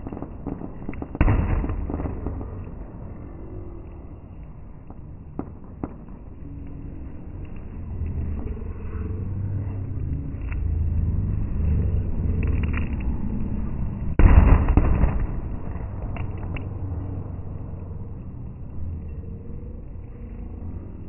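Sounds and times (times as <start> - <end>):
loud firework bang: 0.0 - 2.6, 14.2 - 16.4
fireworks pops and crackles: 0.0 - 3.6, 4.5 - 6.4, 14.1 - 17.6
low rumble: 0.0 - 21.0.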